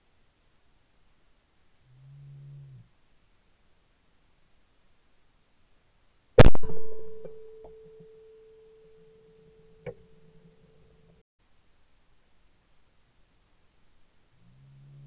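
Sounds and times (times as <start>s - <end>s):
shotgun shot: 6.4s - 7.9s.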